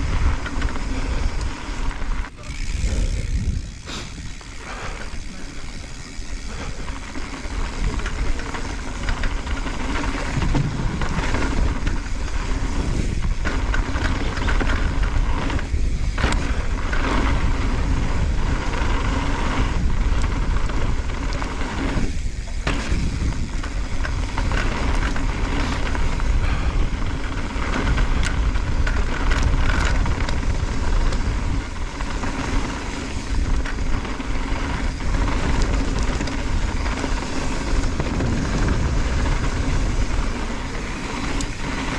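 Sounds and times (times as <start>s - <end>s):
bike rattles and knocks: 0.0s - 41.9s
bike tyres over stones: 0.0s - 41.9s
wind rush on microphone: 0.0s - 41.9s.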